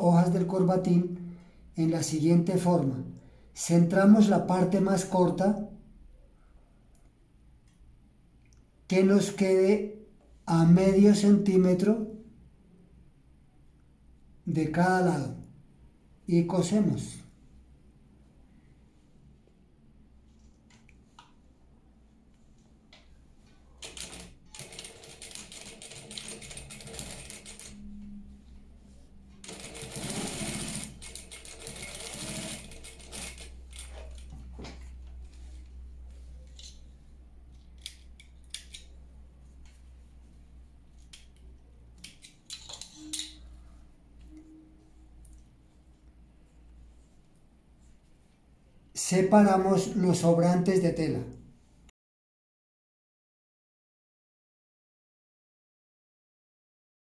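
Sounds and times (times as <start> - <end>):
sewing machine stitching: 23.8 - 27.9, 29.4 - 34.3.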